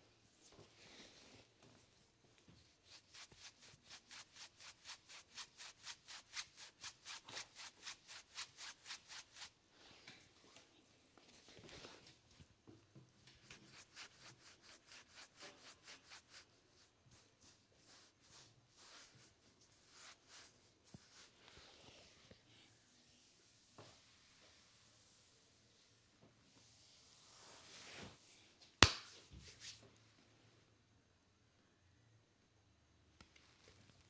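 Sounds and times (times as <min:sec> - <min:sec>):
hands rubbing skin: 0:02.7 - 0:09.6, 0:13.4 - 0:22.2.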